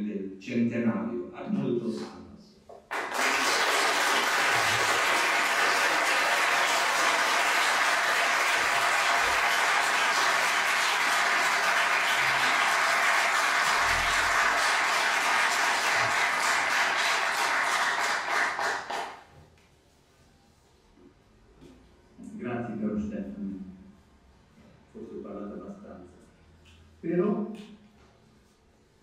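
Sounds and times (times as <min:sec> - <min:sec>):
audience applauding: 0:02.9 - 0:19.3.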